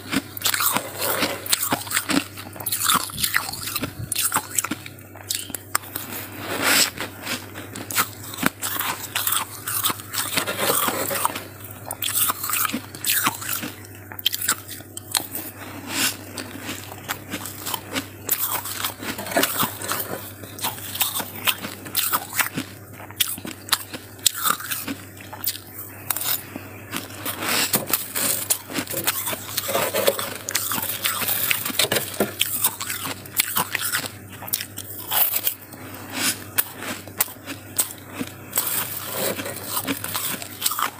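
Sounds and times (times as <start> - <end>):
frost being chewed crunching: 0.0 - 40.9
steady low hum: 0.0 - 40.9.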